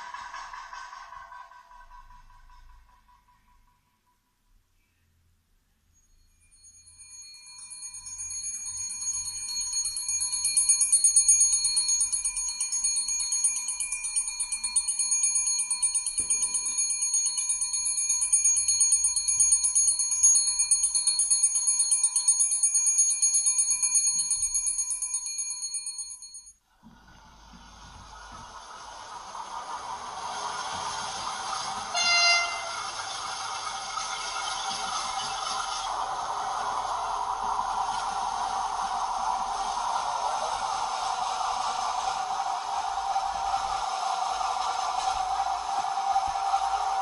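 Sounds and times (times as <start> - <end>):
train rumble: 0.0 - 3.9, 6.6 - 26.2, 26.8 - 47.0
electric warning bell ringing: 5.9 - 26.6, 30.1 - 36.8.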